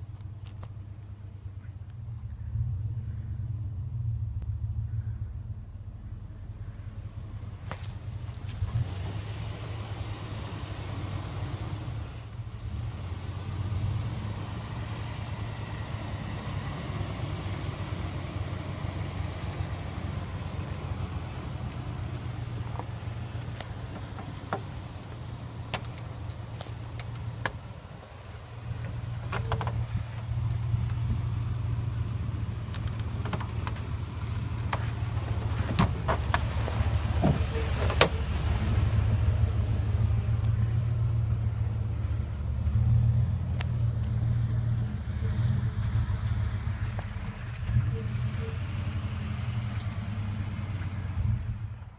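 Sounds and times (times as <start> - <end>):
pickup truck engine running: 0.0 - 51.9
sharp clicks and knocks: 23.5 - 27.6, 28.8 - 31.5, 32.6 - 36.5.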